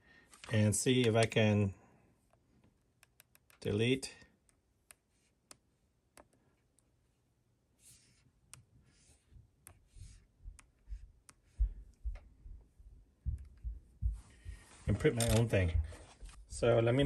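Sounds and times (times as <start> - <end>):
stylus tapping touchscreen: 3.0 - 3.7, 7.9 - 15.9.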